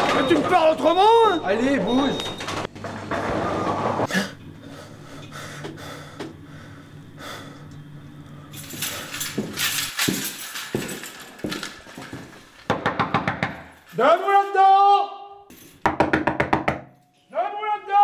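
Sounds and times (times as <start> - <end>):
fist knocking on door: 12.7 - 13.6, 15.8 - 16.9.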